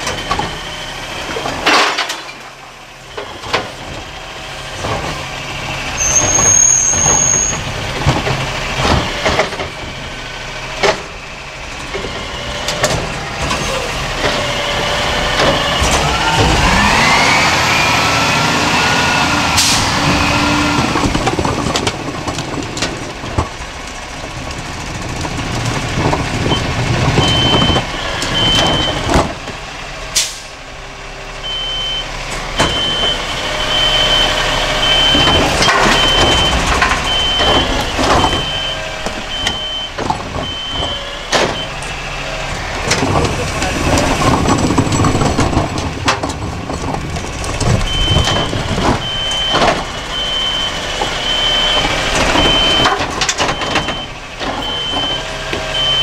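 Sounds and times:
truck engine revving: 3.2s - 56.0s
high warning beep: 31.4s - 41.8s
truck arm clattering knocks: 34.9s - 41.9s.

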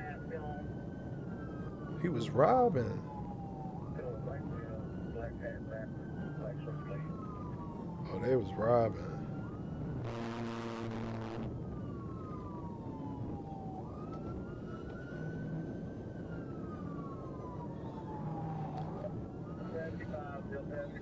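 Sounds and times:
police siren wailing: 0.0s - 21.0s
buzzing horn blast: 10.0s - 11.5s.

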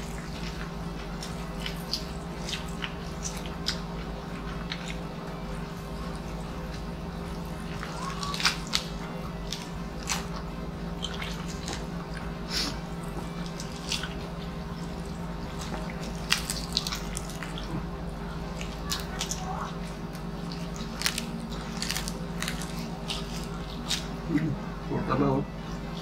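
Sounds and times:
wet chewing smacks: 0.0s - 5.1s, 7.8s - 24.4s
crispy food crackling: 0.0s - 24.5s
steady low hum: 0.0s - 26.0s.

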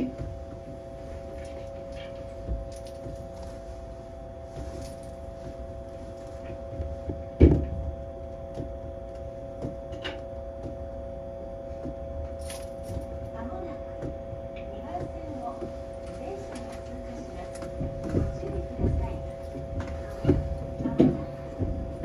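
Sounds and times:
electrical equipment humming: 0.0s - 22.0s.

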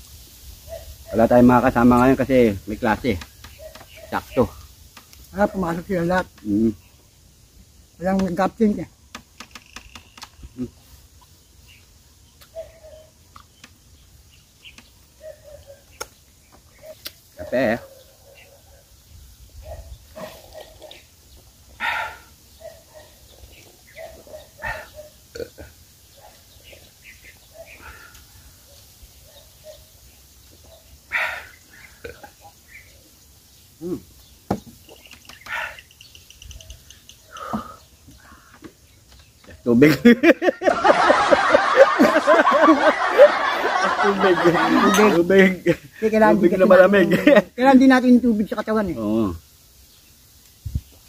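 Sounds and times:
bird chirping: 0.7s - 40.7s
chewing and finger-licking: 13.3s - 13.6s.

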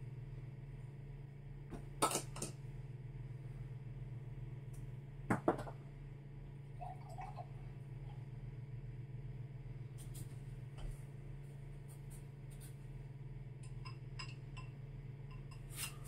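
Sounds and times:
steady low hum: 0.0s - 16.0s
liquid trickling into glass: 6.8s - 7.6s.

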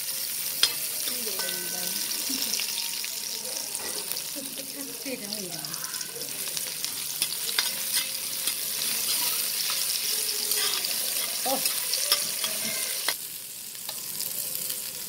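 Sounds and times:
onions sizzling in oil: 0.0s - 15.0s
metal spoon scraping pot: 7.2s - 13.2s.

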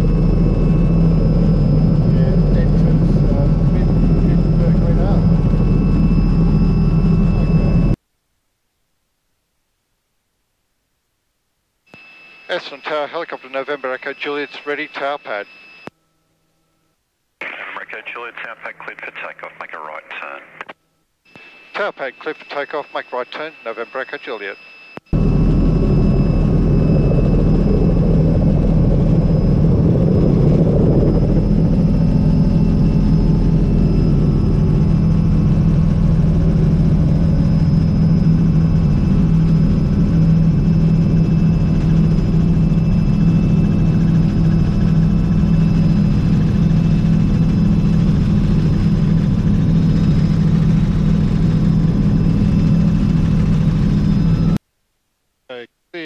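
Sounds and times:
helicopter rotor drone: 0.0s - 8.0s, 21.5s - 54.6s
high turbine whine: 0.0s - 8.0s, 21.3s - 54.6s.

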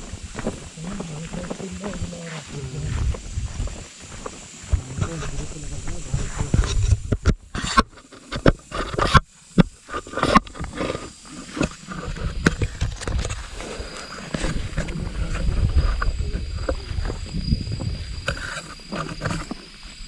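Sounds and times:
rough low rumble: 0.0s - 7.4s, 14.4s - 18.3s
fingers rubbing on microphone: 4.8s - 9.2s.

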